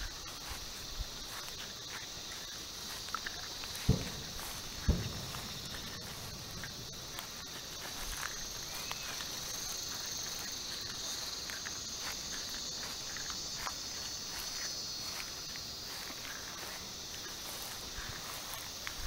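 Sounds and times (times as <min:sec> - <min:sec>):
high-pitched insect chorus: 0:00.0 - 0:19.0
faint ticks: 0:01.4 - 0:11.8.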